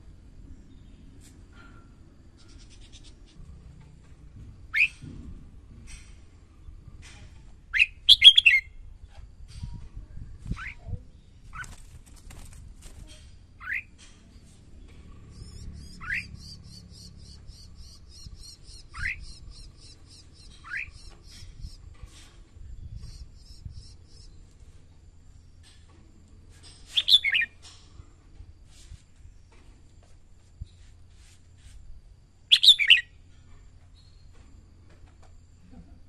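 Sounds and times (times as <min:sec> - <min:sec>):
bird whistled calls and song: 0:04.7 - 0:05.0, 0:07.7 - 0:08.8, 0:15.3 - 0:21.8, 0:26.9 - 0:27.6, 0:32.5 - 0:33.2.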